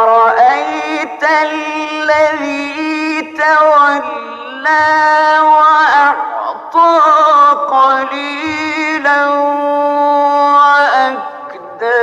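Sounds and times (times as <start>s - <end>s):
man chanting unaccompanied: 0.0s - 12.0s.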